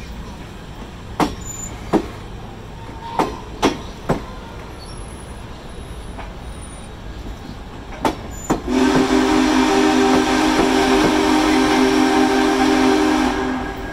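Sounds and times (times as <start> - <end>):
wheels clacking over rail joints: 0.0 - 9.2
train cars rumbling on track: 0.0 - 13.9.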